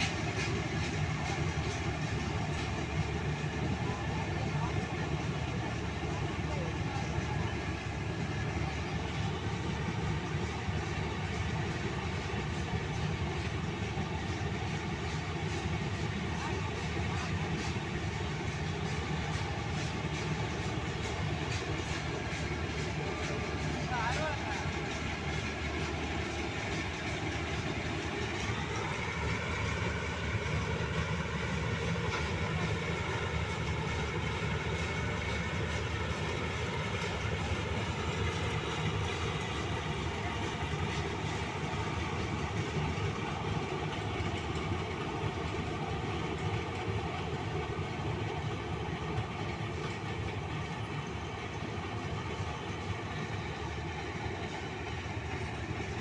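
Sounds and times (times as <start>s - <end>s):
combine harvester engine running: 0.0s - 56.0s.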